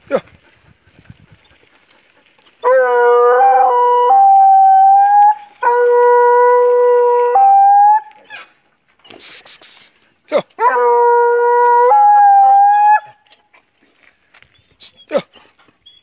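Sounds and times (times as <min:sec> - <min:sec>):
hound baying: 0:01.3 - 0:08.6, 0:10.5 - 0:13.7.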